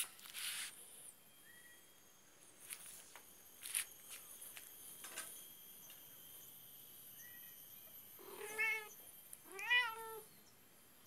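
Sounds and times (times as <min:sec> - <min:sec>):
kitten meowing: 0:08.3 - 0:10.3.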